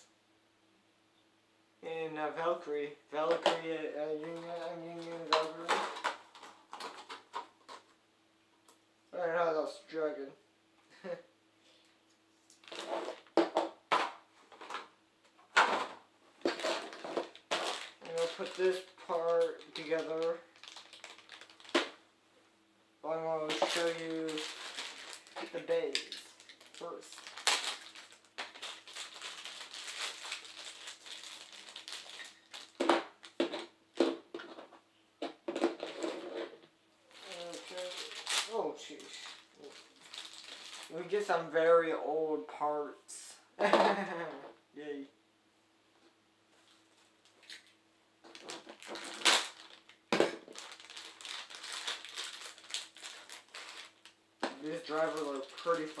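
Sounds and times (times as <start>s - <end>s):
plastic packaging crinkling: 3.3s - 7.9s, 12.4s - 14.9s, 15.6s - 22.0s, 23.1s - 33.7s, 37.1s - 41.3s, 47.2s - 56.0s.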